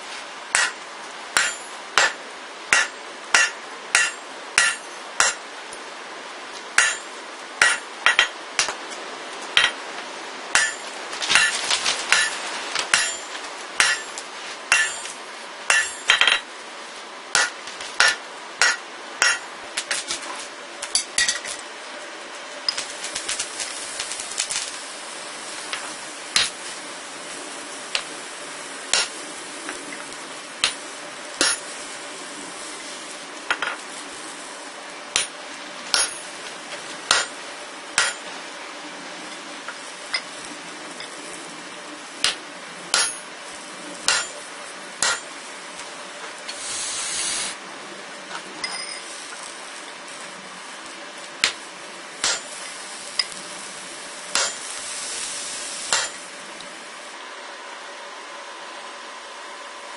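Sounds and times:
hammer striking steel punch: 0.5 - 0.8, 1.4 - 5.4, 6.8 - 8.8, 10.6 - 10.8, 12.9 - 15.1, 15.7 - 16.4, 17.3 - 19.4, 28.9 - 29.1, 31.4 - 31.6, 35.9 - 36.2, 37.1 - 37.3, 42.2 - 43.2, 44.1 - 44.4
short hiss: 46.5 - 47.6.

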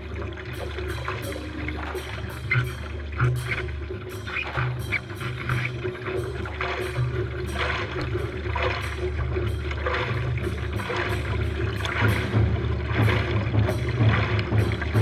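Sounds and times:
low rumble of water and wind: 0.0 - 15.0
hands splashing in water: 4.3 - 15.0.

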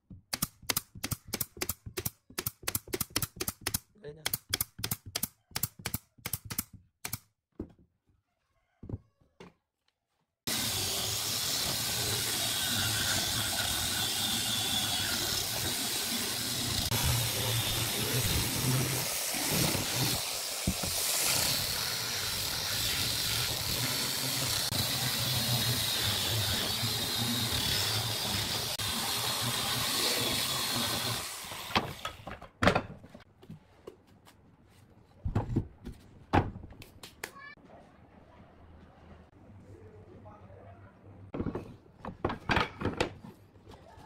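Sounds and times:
angle grinder sanding wood: 10.5 - 32.0.

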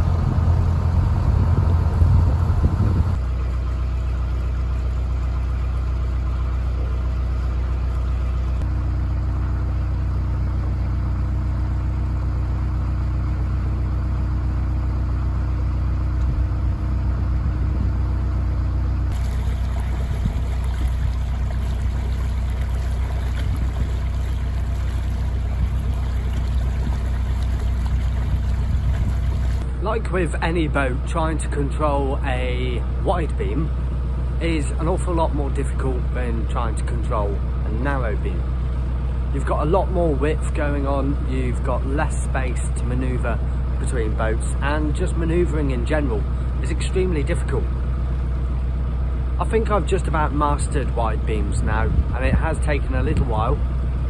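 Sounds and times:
boat diesel engine droning: 0.0 - 54.0.

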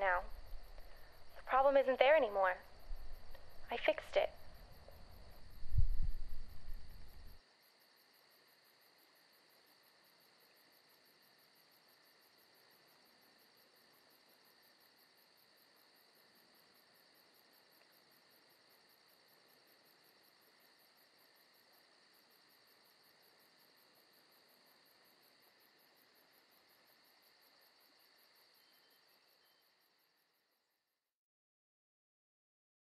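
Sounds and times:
crickets chirping faintly: 0.0 - 31.1
deep low rumble: 4.3 - 7.4.

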